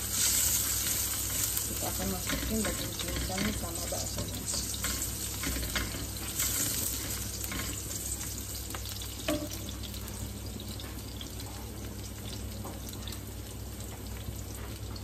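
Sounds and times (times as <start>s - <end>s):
spatula stirring in wok: 0.0s - 9.5s
shallots sizzling in oil: 0.0s - 15.0s
small crackles: 0.2s - 9.2s.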